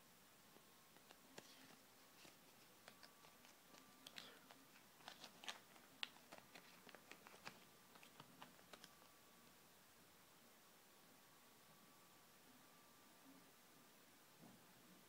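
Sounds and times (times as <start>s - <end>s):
paper leaflet crinkling: 1.0s - 9.0s.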